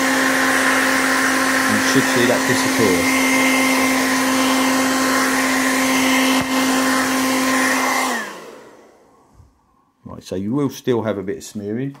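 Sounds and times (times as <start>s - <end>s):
hairdryer running: 0.0s - 9.6s.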